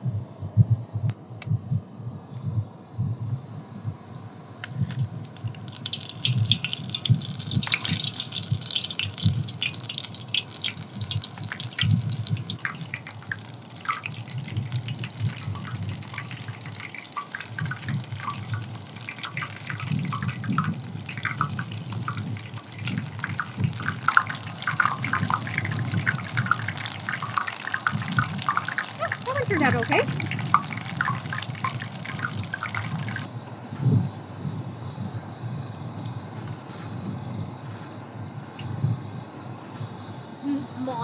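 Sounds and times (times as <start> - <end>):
oil popping and crackling: 4.6 - 33.3
batter deep-frying in hot oil: 4.6 - 33.4.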